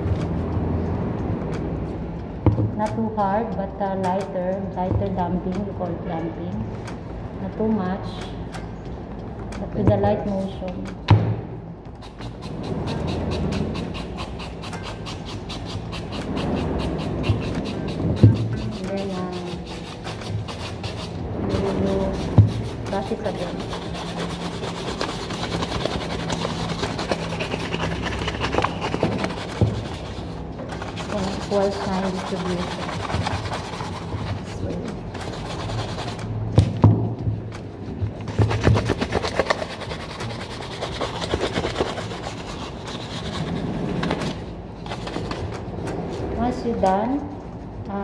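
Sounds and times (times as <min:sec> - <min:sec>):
shoe brushes scrubbing leather: 0:12.0 - 0:36.3, 0:38.2 - 0:44.2.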